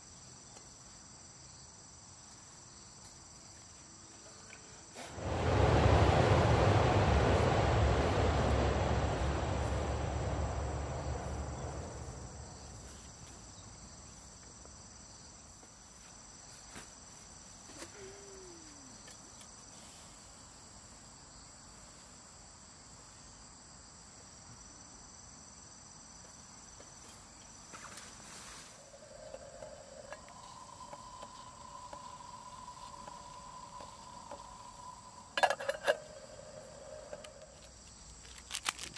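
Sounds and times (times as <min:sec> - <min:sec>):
loud rushing noise: 0:05.1 - 0:13.2
insects trilling: 0:05.2 - 0:21.7, 0:22.3 - 0:38.9.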